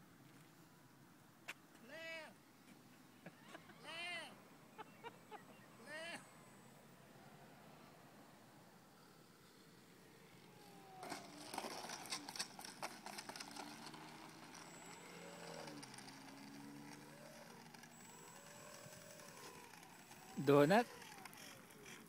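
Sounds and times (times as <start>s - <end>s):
small model plane motor: 10.2s - 22.0s
model plane wheels rattling on asphalt: 10.7s - 22.0s.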